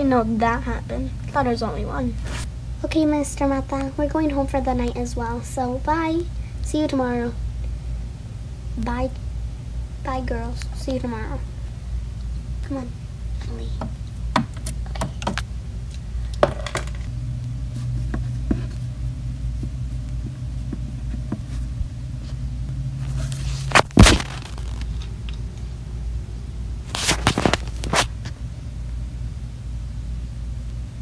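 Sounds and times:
low hum: 0:00.0 - 0:31.0.

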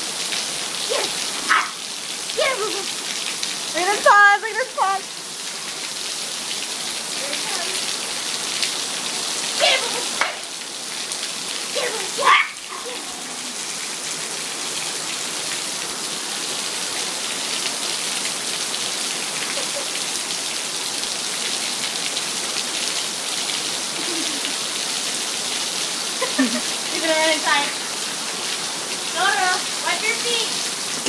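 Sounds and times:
heavy rain pattering: 0:00.0 - 0:31.0
high-pitched vocal sound: 0:09.6 - 0:10.2, 0:11.8 - 0:13.5.

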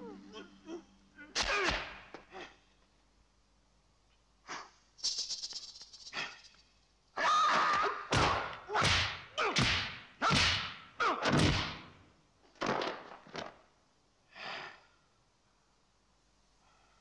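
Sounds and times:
shrill yell: 0:07.2 - 0:08.8.

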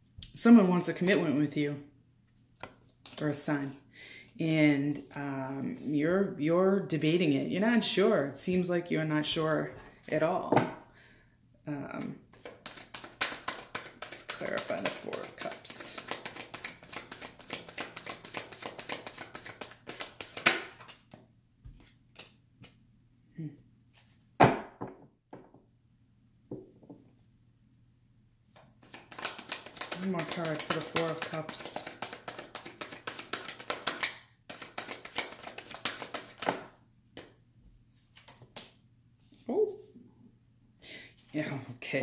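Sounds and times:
cards being shuffled: 0:02.4 - 0:03.3, 0:12.3 - 0:22.8, 0:28.5 - 0:38.8
card taps: 0:28.9 - 0:36.6.

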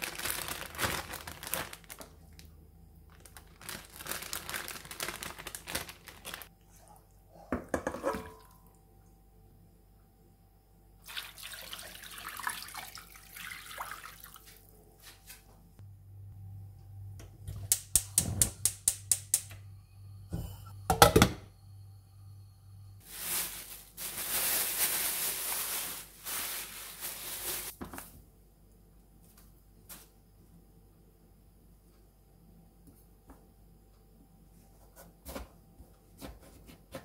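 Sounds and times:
plastic bag crinkling: 0:00.0 - 0:06.5, 0:23.0 - 0:27.8
water pouring into saucepan: 0:11.0 - 0:14.5
low hum: 0:15.8 - 0:23.1
gas stove igniter clicking: 0:17.2 - 0:19.6.

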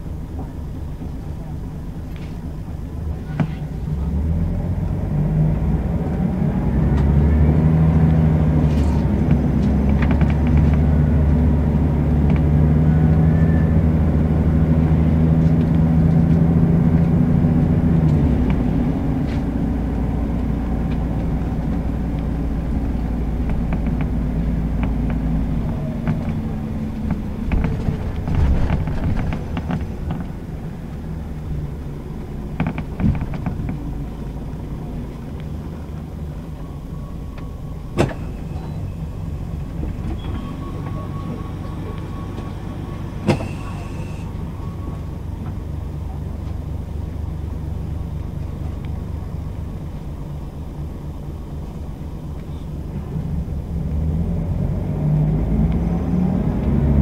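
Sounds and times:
bus engine under load: 0:00.0 - 0:57.0
rattles and knocks: 0:24.8 - 0:31.2, 0:32.2 - 0:33.9.

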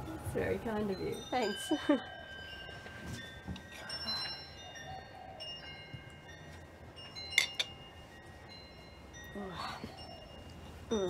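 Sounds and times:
wind chimes tinkling: 0:00.0 - 0:11.0.

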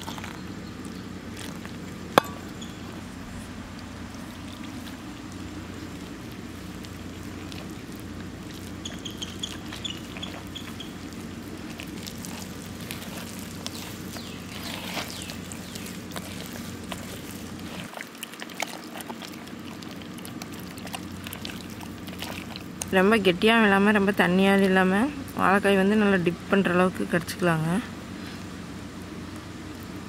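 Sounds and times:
wet squelches of hand mixing: 0:00.0 - 0:26.2
steady low hum: 0:00.0 - 0:30.0
water poured into batter: 0:03.8 - 0:22.9.

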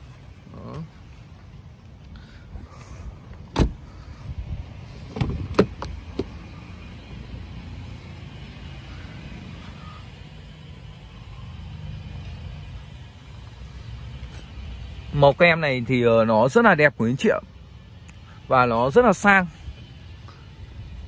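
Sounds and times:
low steady rumble: 0:00.0 - 0:21.0
car door latch clicks: 0:03.5 - 0:03.8, 0:05.1 - 0:06.4.

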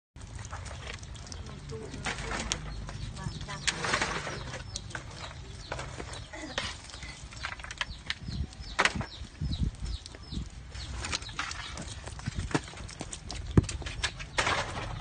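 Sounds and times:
water splashing: 0:00.2 - 0:07.5
low microphone rumble: 0:07.0 - 0:13.8.

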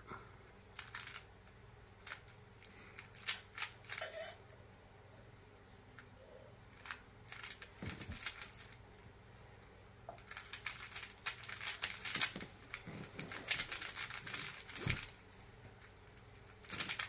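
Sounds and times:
puzzle cube clicking and rattling: 0:00.8 - 0:01.3, 0:02.0 - 0:04.0, 0:06.7 - 0:08.8, 0:10.2 - 0:15.3, 0:16.0 - 0:17.0.

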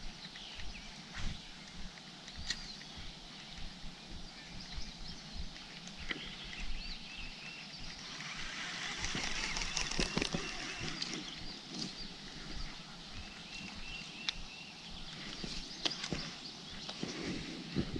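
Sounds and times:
small birds chirping: 0:00.0 - 0:17.9
sharp clicks: 0:08.0 - 0:11.2.

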